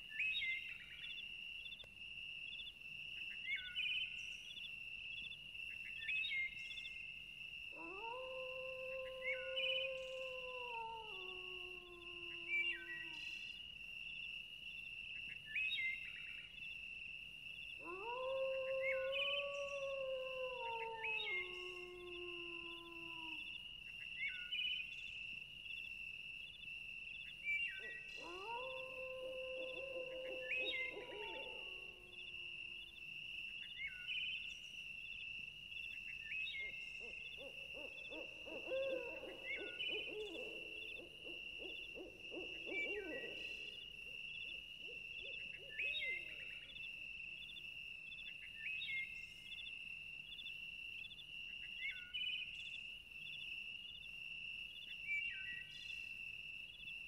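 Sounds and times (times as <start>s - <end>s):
low hooting call: 37.0s - 43.9s
wavering animal calls: 37.0s - 44.0s.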